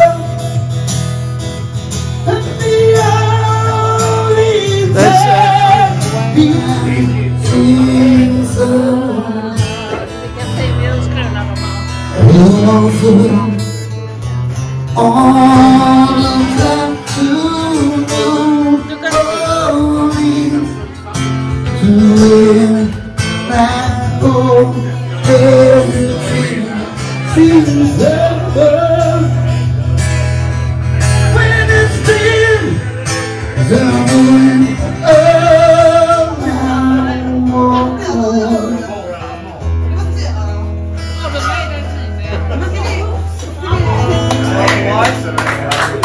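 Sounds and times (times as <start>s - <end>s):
man singing into a microphone: 0.0s - 0.8s, 2.2s - 10.8s, 11.9s - 29.9s, 30.9s - 39.6s
acoustic guitar: 0.0s - 46.0s.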